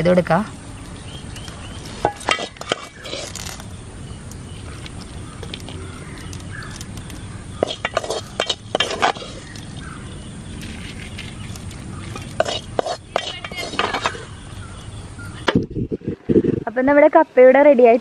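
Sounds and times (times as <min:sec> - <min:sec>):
metal spoon clinking on pot: 0:02.0 - 0:03.0, 0:07.6 - 0:09.2, 0:12.1 - 0:14.2.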